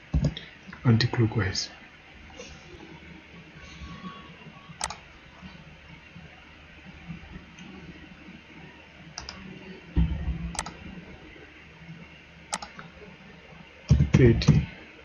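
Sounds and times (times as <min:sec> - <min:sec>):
computer mouse clicks: 0:04.8 - 0:05.0, 0:09.2 - 0:09.4, 0:10.5 - 0:10.8, 0:12.5 - 0:12.9.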